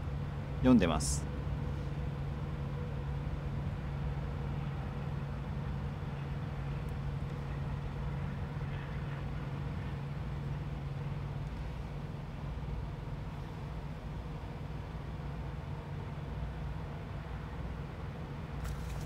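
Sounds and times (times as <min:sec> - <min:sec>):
engine idling hum: 0:00.0 - 0:19.0
faint rustle: 0:18.6 - 0:19.0.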